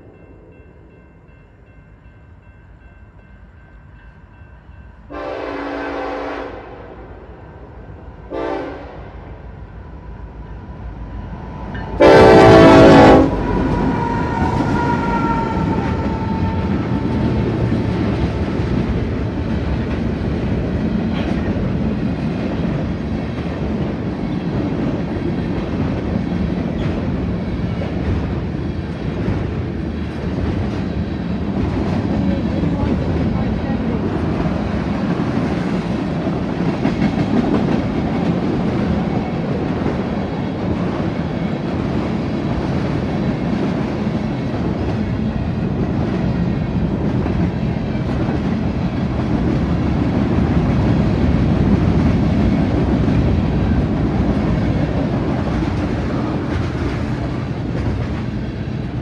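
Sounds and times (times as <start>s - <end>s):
ringing crossing bell: 0.0s - 5.1s
locomotive air horn blasts: 5.1s - 6.9s, 8.3s - 9.2s, 12.0s - 16.8s.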